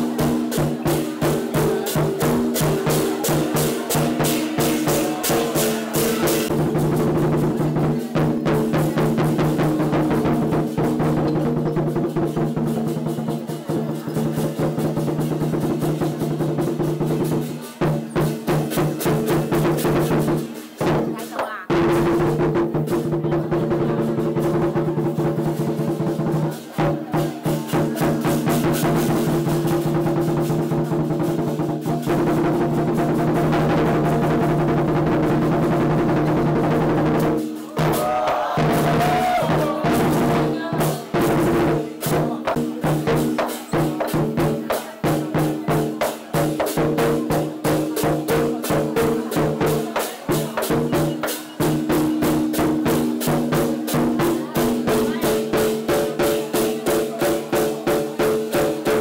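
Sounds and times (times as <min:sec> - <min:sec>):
cymbals clashing: 0:00.0 - 0:23.2, 0:35.9 - 0:47.8
big drum beating: 0:00.0 - 0:59.0.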